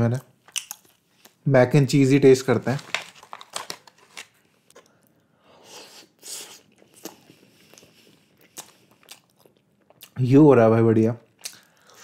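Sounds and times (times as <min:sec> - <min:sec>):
mouth eating sounds: 0:05.6 - 0:10.2.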